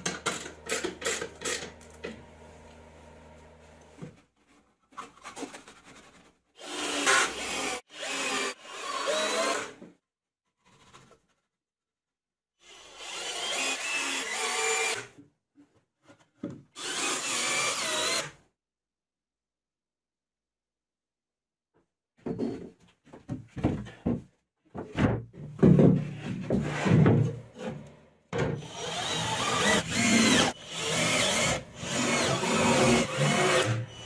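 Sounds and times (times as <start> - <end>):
cordless drill into wood: 6.6 - 9.8, 12.6 - 15.1, 16.8 - 18.4, 28.6 - 34.0.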